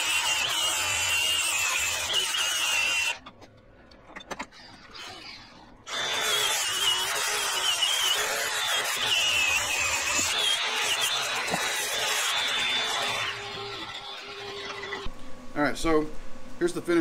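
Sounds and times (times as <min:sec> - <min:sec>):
angle grinder grinding steel: 0:00.0 - 0:03.2, 0:04.9 - 0:15.1.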